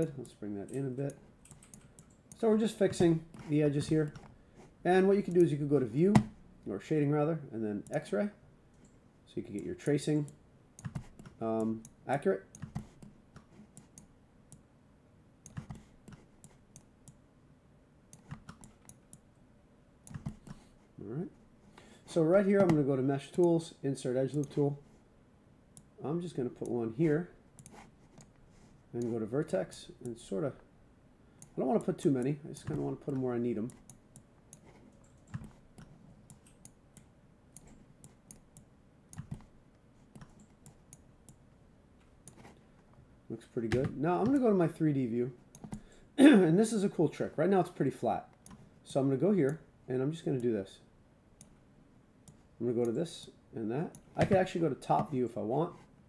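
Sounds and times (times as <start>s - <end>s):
computer mouse clicks: 0.2s - 4.3s, 5.2s - 5.6s, 10.8s - 14.6s, 15.4s - 17.2s, 18.1s - 19.2s, 20.0s - 20.6s, 24.3s - 24.6s, 27.6s - 28.4s, 33.6s - 39.5s, 40.1s - 41.4s, 42.2s - 42.6s
mouse and keyboard clicks: 5.3s - 5.5s.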